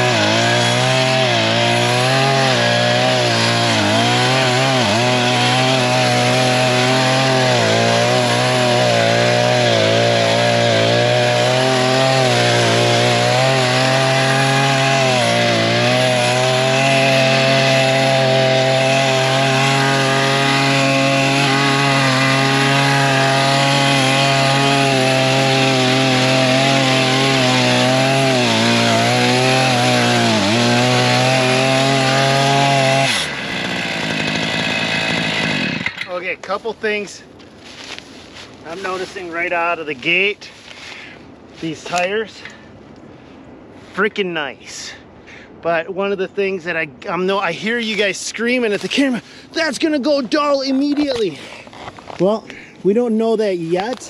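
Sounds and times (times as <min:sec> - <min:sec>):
brush cutter engine running: 0:00.0 - 0:36.2
chain cutting dry grass: 0:37.6 - 0:41.0.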